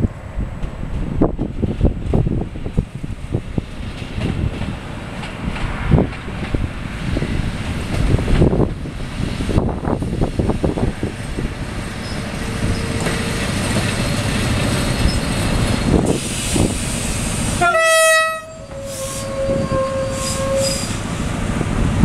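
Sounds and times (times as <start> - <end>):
diesel locomotive engine rumbling: 0.0 - 22.0
train horn blast: 17.6 - 21.0.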